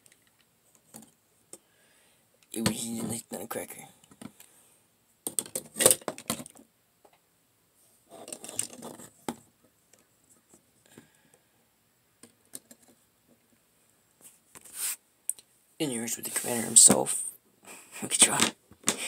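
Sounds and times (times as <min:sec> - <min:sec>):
plastic figures clicking and clattering: 0:00.0 - 0:01.6, 0:05.2 - 0:07.2, 0:08.1 - 0:11.1, 0:12.2 - 0:13.6, 0:18.2 - 0:19.0.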